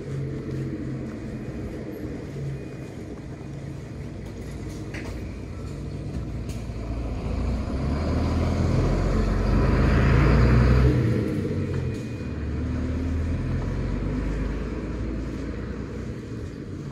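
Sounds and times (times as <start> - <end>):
bus diesel engine pulling away: 0.0 - 16.9.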